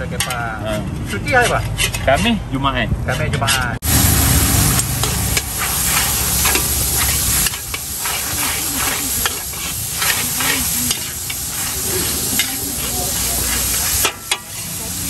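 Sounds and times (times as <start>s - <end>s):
spatula scraping and clanking on wok: 0.0s - 2.5s, 3.1s - 15.0s
noodles sizzling in a wok: 3.8s - 15.0s.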